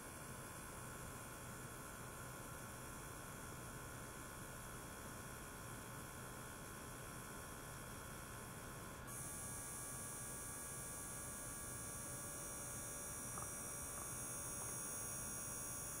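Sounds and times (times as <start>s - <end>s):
electrical hum: 9.0s - 16.0s.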